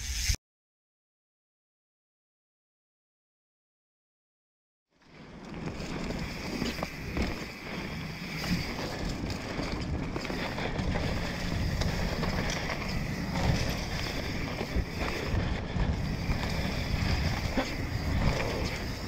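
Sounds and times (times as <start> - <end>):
bike tyres rolling over dirt: 5.0 - 19.0
wind buffeting microphone: 5.2 - 19.0
bike knocking: 5.4 - 19.0.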